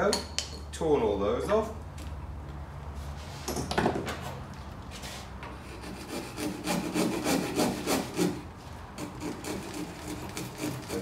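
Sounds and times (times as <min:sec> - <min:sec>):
handsaw scraping wood: 0:05.5 - 0:11.0.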